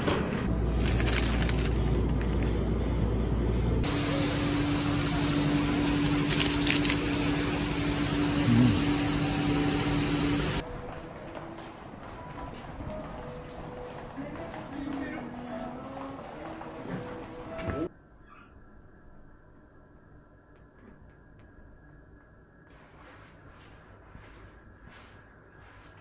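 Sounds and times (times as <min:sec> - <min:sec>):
street hum and traffic: 0:00.0 - 0:15.0
foil wrapper crackling: 0:00.7 - 0:02.5, 0:05.5 - 0:08.0.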